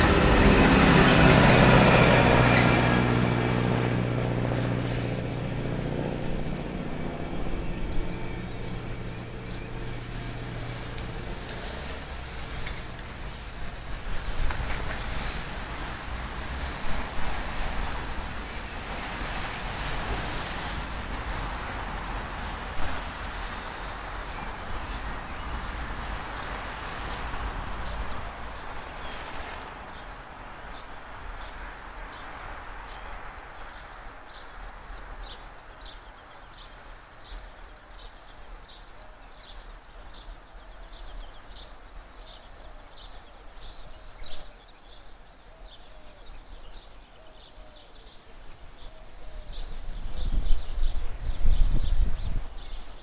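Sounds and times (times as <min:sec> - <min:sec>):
distant train running past: 0:00.0 - 0:38.8.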